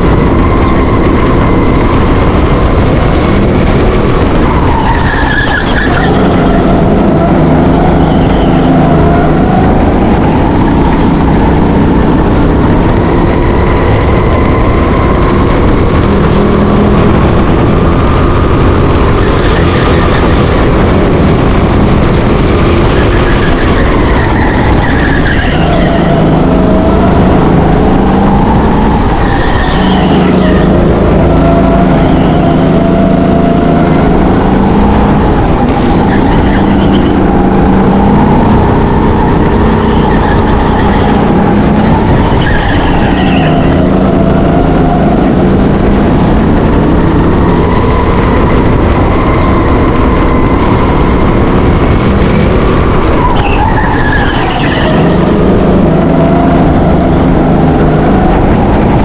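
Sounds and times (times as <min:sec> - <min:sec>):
go-kart engine revving: 0:00.0 - 0:59.0
tyres squealing: 0:53.0 - 0:58.6.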